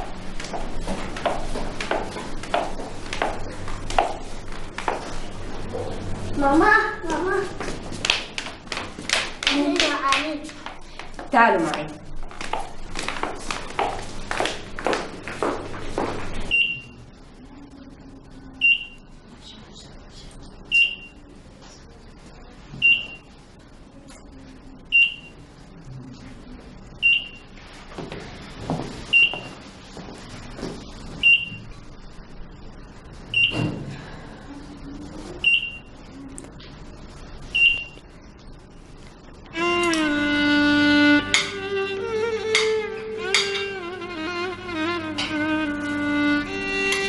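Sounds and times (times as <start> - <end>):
medical monitor beeping: 16.4 - 17.0, 18.6 - 19.1, 20.7 - 21.2, 22.8 - 23.3, 24.9 - 25.4, 27.0 - 27.5, 29.1 - 29.5, 31.2 - 31.7, 33.3 - 33.7, 35.4 - 36.0, 37.5 - 38.0
string music with violin: 39.5 - 47.0.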